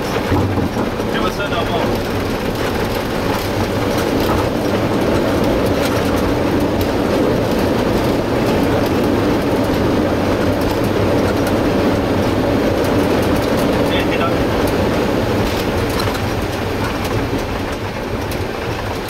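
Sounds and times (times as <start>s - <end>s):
airliner engines and runway rumble: 0.0s - 19.0s.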